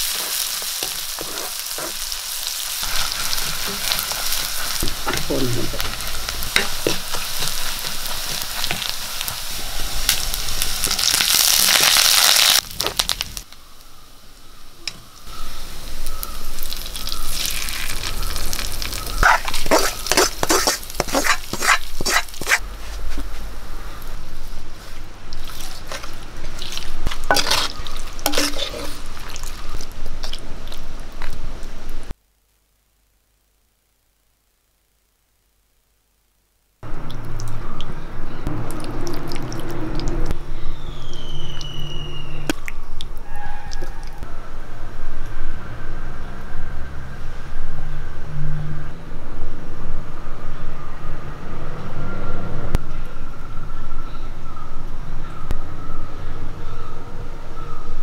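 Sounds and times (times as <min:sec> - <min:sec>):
food sizzling in hot oil: 0:00.0 - 0:22.6, 0:25.3 - 0:32.1
metal ladle scraping a pot: 0:00.3 - 0:02.1, 0:19.2 - 0:22.6, 0:27.1 - 0:29.4.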